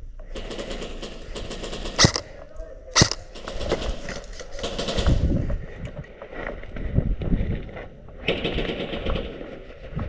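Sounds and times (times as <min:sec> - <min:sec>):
airsoft guns firing: 0:00.3 - 0:02.4, 0:03.0 - 0:03.8
loud crack: 0:02.0 - 0:02.3, 0:03.0 - 0:03.3.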